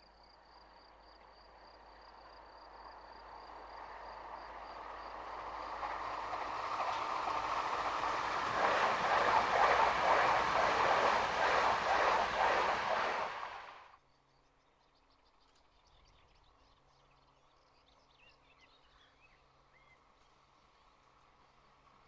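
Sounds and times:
train rumble: 0:01.8 - 0:13.9.

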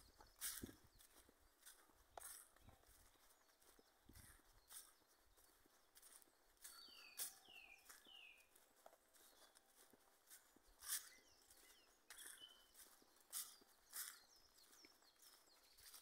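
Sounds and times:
footsteps crunching in dry leaves: 0:00.0 - 0:16.0.

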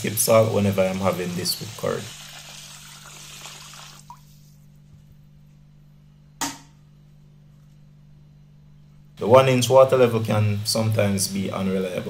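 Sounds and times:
water pouring into a metal pot: 0:00.0 - 0:04.2.

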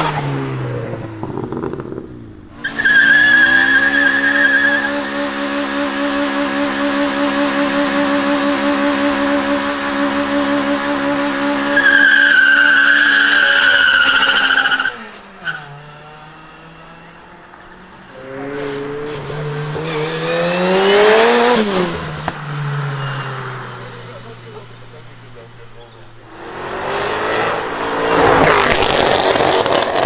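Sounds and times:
car engine revving: 0:00.0 - 0:30.0
tyre squeal: 0:02.6 - 0:05.0, 0:11.7 - 0:15.8, 0:22.9 - 0:26.2.

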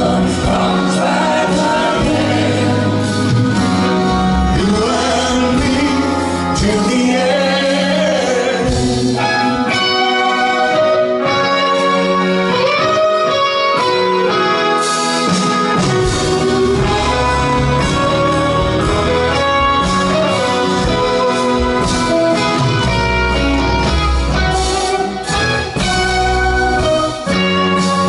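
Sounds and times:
bass and drums: 0:00.0 - 0:10.4, 0:11.2 - 0:28.0
guitar: 0:00.0 - 0:28.0
accordion: 0:09.4 - 0:28.0.

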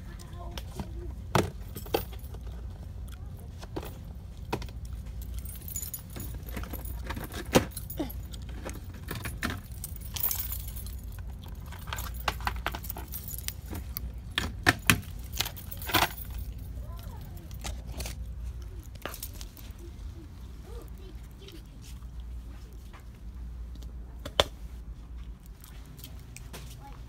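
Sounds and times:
steady low hum: 0:00.0 - 0:27.0
jangly clinks and rattles: 0:04.8 - 0:19.9.

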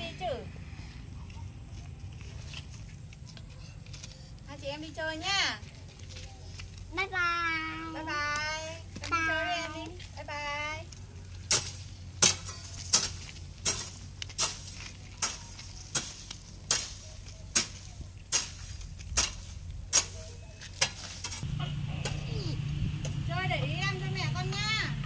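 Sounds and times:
low steady engine hum: 0:00.0 - 0:25.0
hoe chopping into sandy soil: 0:11.5 - 0:21.4.

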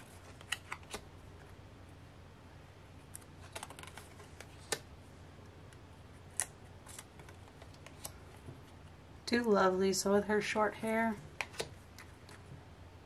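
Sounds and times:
photo cards clicking together: 0:00.3 - 0:01.1, 0:03.1 - 0:04.9, 0:06.3 - 0:08.2, 0:11.4 - 0:12.4.

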